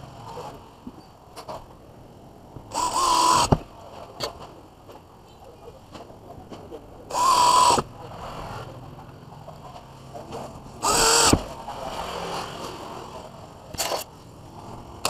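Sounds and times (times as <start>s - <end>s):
electric drill motor whine: 2.7s - 3.5s, 7.1s - 7.8s, 10.8s - 11.5s.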